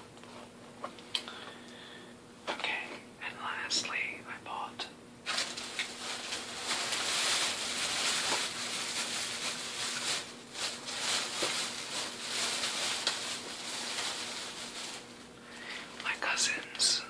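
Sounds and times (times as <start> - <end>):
plastic bag rustling: 5.2 - 16.5.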